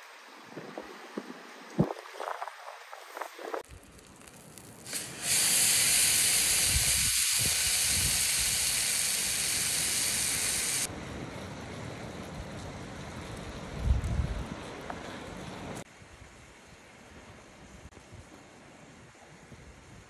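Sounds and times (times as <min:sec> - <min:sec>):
steak sizzling in a pan: 0:04.2 - 0:10.9.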